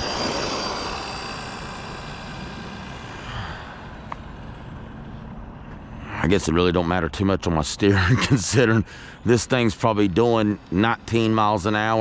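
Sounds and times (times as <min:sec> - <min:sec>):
toy car electric motor whining: 0:00.0 - 0:05.0, 0:09.4 - 0:12.0.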